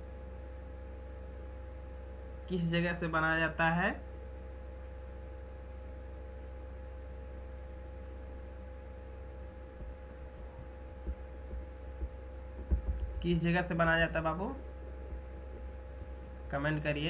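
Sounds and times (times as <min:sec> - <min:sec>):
electrical hum: 0:00.0 - 0:17.0
faint low bumps: 0:09.0 - 0:17.0.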